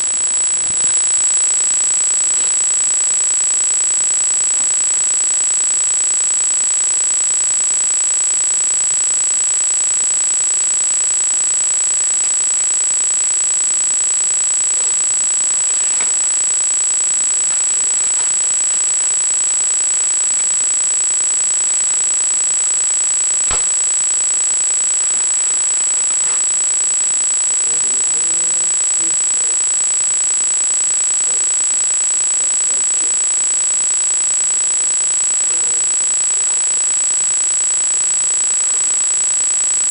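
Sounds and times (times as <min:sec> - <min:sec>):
high-pitched electronic whine: 0:09.5 - 0:32.0
sharp click: 0:23.5 - 0:23.8.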